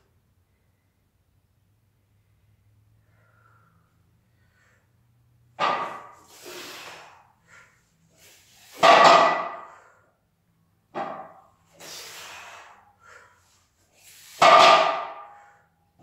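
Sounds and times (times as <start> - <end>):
barbell plates clanging: 8.7 - 9.7, 14.4 - 15.3.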